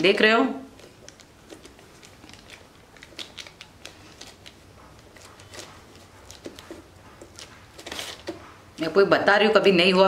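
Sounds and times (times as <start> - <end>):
plastic sheet crinkling: 0.7 - 8.4.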